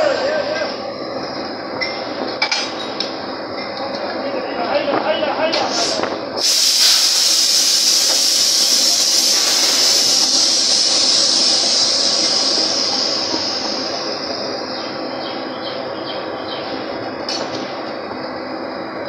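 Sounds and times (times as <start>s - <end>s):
drilling rig machinery hissing: 0.0s - 3.2s, 5.4s - 19.0s.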